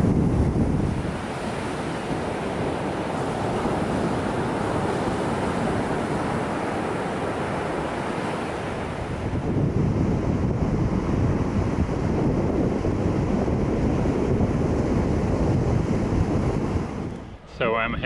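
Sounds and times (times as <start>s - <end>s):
surf washing on beach: 0.0s - 18.0s
wind buffeting microphone: 0.0s - 18.0s
waves breaking on rocks: 1.0s - 9.4s.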